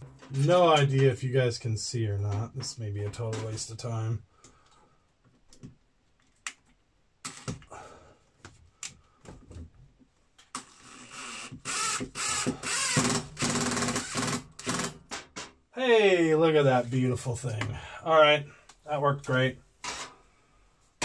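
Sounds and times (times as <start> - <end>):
electric drill running: 11.6 - 14.8.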